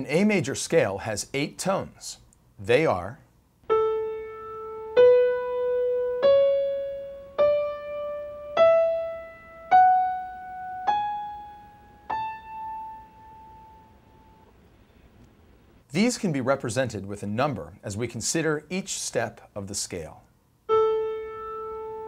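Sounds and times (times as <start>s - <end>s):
piano scale single notes: 3.6s - 14.6s, 20.7s - 22.0s.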